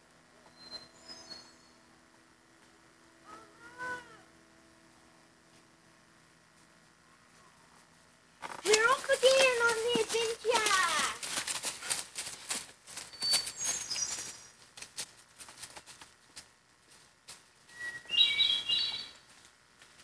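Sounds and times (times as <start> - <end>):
bird chirping: 0.5 - 1.9, 13.1 - 14.6, 17.7 - 19.2
footsteps through dry leaves: 8.6 - 17.8.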